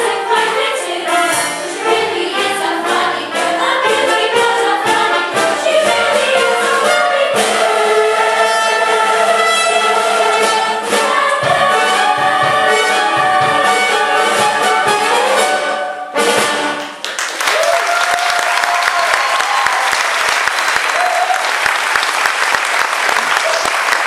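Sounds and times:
orchestral music with brass: 0.0 - 17.0
audience applause: 16.8 - 24.0
people cheering: 17.1 - 24.0.

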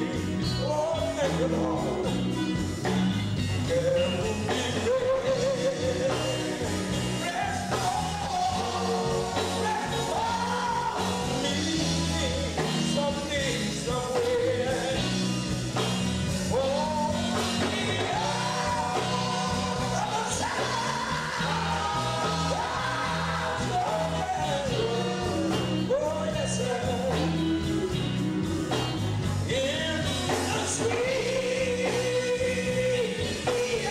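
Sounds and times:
drums: 0.0 - 33.9
electric guitar: 0.0 - 33.9
men's quartet singing harmony: 3.6 - 33.9.

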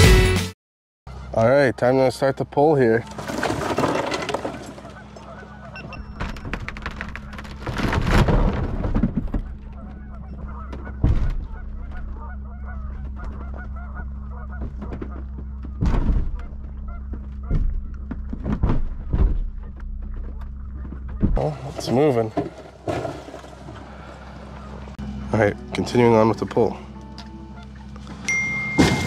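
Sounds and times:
tow truck engine running: 4.2 - 7.7, 8.7 - 21.3, 22.0 - 29.0
ice cracking and knocking: 6.2 - 9.6.

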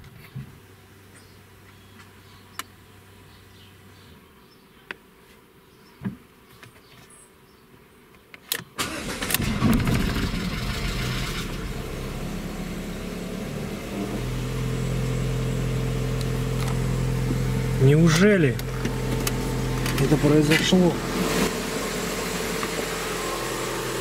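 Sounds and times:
car engine starting and idling: 8.8 - 24.0.

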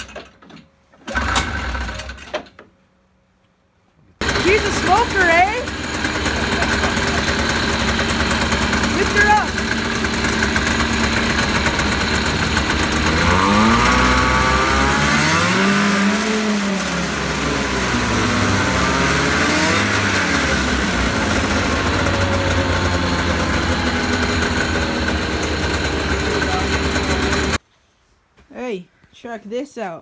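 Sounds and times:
snowmobile engine idling and revving: 4.2 - 27.6.

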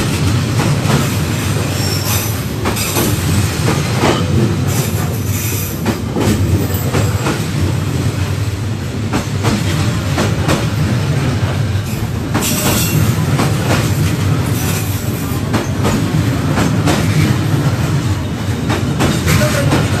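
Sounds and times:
train coaches rumbling past: 0.0 - 20.0.

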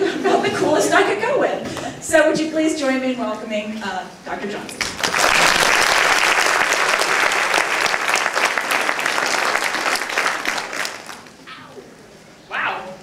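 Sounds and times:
audience applauding: 4.8 - 11.4.

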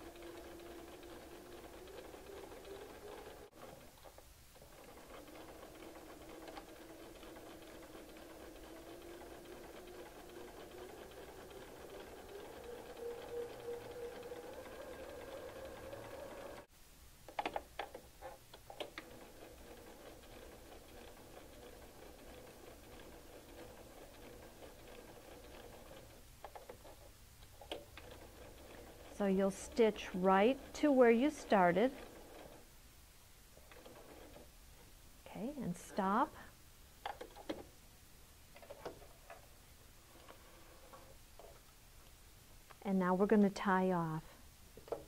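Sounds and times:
sewing machine stitching: 0.0 - 16.7, 17.4 - 32.7, 33.6 - 34.6.

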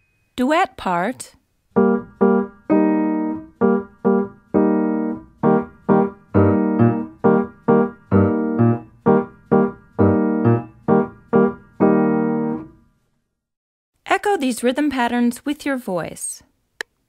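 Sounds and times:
piano piece: 1.7 - 12.8.

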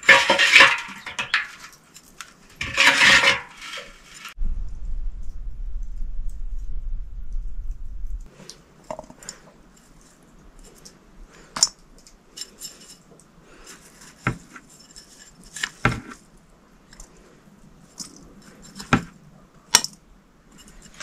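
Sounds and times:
metal dishes clinking: 0.0 - 1.9, 2.6 - 4.3
low rumble: 4.4 - 8.3.

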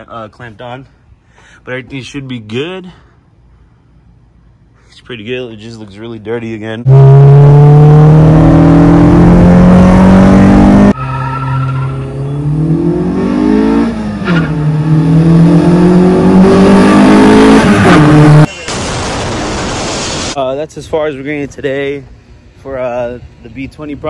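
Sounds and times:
car engine accelerating: 6.8 - 18.5.

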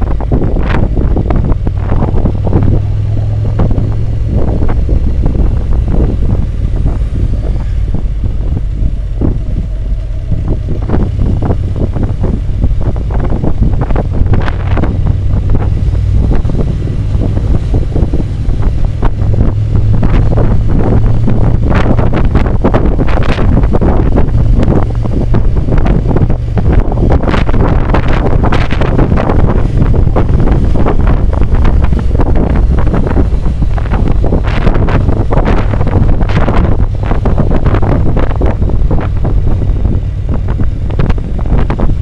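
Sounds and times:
motorcycle engine drone: 0.0 - 42.0
wind buffeting microphone: 0.0 - 42.0.

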